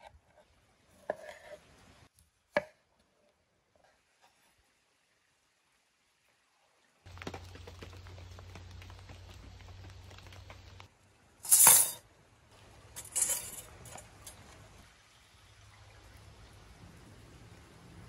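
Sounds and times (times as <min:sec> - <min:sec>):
metal skewers clattering on stone: 0:11.5 - 0:12.0, 0:13.0 - 0:14.5.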